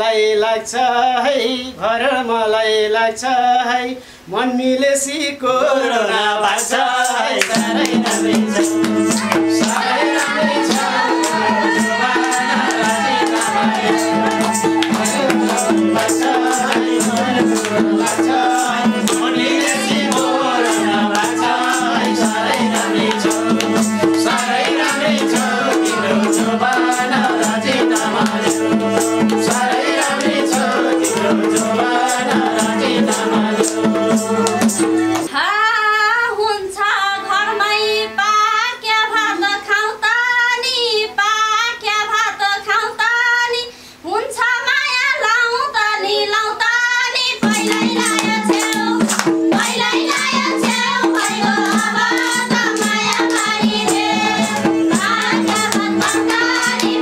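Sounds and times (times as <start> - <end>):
woman singing unaccompanied: 0.0 - 57.0
hand drums fast beat: 6.6 - 35.3, 47.4 - 57.0.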